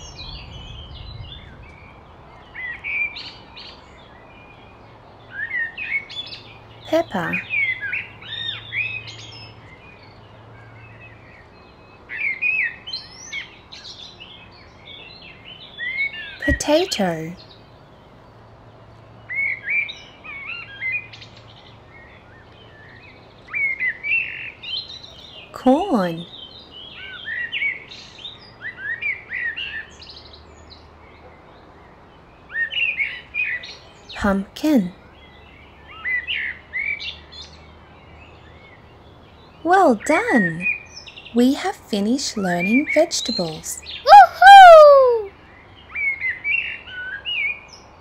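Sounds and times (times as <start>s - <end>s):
birds chirping: 6.2s - 10.2s, 38.8s - 45.3s.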